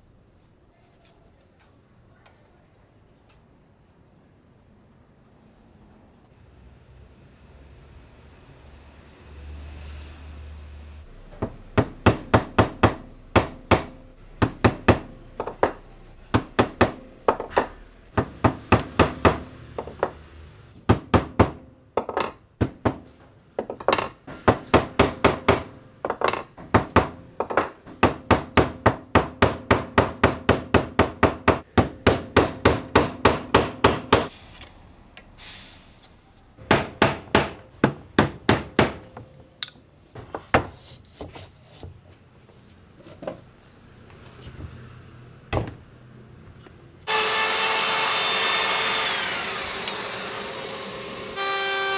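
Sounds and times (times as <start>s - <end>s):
chisel struck into wood: 11.4s - 20.2s, 20.8s - 34.3s, 36.6s - 39.1s.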